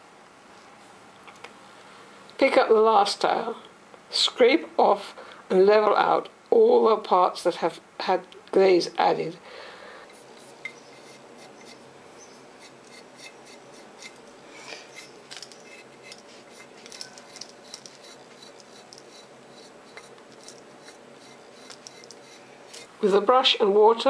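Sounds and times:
blade scraping tile surface: 0:10.4 - 0:11.9, 0:12.6 - 0:22.9.

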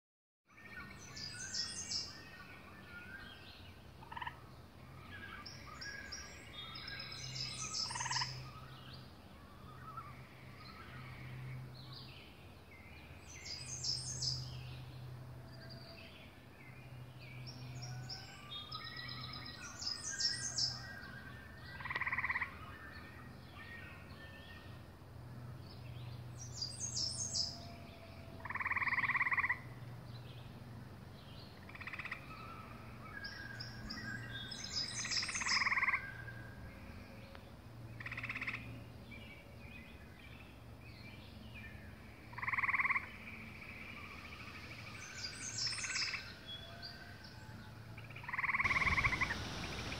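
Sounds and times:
birds singing: 0:00.5 - 0:49.9
loud bird calls: 0:31.6 - 0:36.3, 0:42.3 - 0:49.9.

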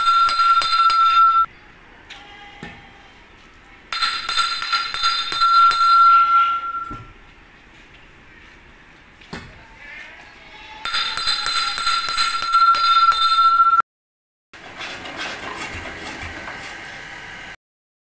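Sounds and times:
steady ringing tone: 0:00.0 - 0:01.5, 0:03.9 - 0:07.1, 0:10.9 - 0:13.8.

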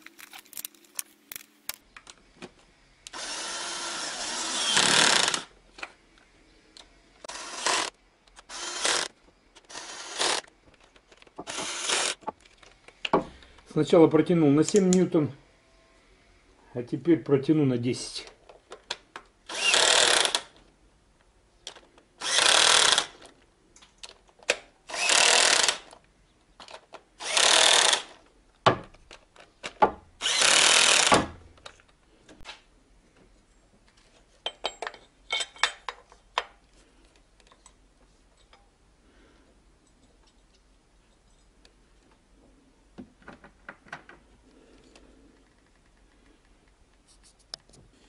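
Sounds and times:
cordless drill bursts: 0:03.1 - 0:05.5, 0:07.3 - 0:07.9, 0:08.5 - 0:09.1, 0:09.7 - 0:10.4, 0:11.5 - 0:12.2, 0:19.5 - 0:20.5, 0:22.2 - 0:23.2, 0:24.9 - 0:25.9, 0:27.2 - 0:28.2, 0:30.2 - 0:31.2
tool clicks and ticks: 0:11.4 - 0:12.4.

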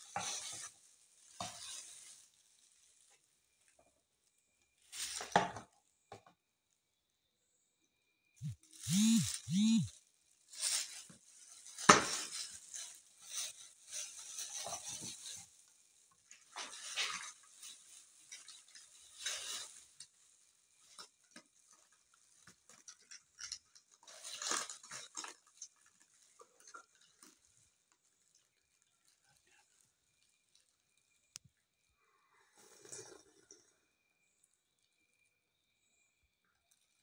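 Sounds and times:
plastic bag crinkling: 0:00.0 - 0:03.4, 0:08.6 - 0:30.9.

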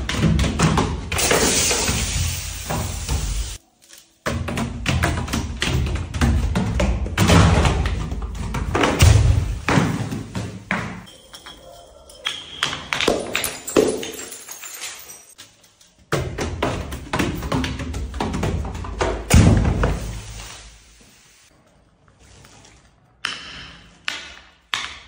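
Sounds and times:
bottles tumbling down stone stairs: 0:04.2 - 0:20.2.

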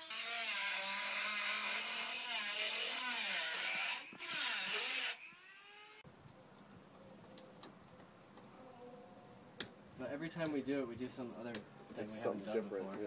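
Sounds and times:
power drill boring: 0:00.0 - 0:06.0.

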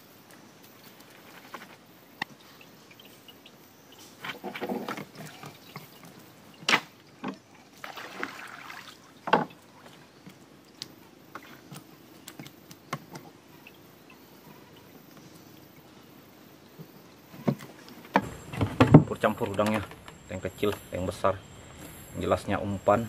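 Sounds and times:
water splash: 0:07.8 - 0:09.9.

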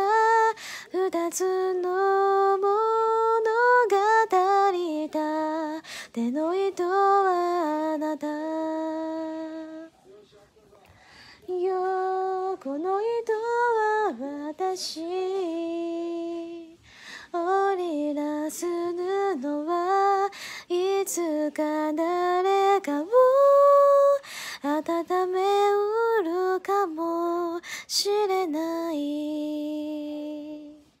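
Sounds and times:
woman singing unaccompanied: 0:00.0 - 0:09.9, 0:11.4 - 0:31.0.

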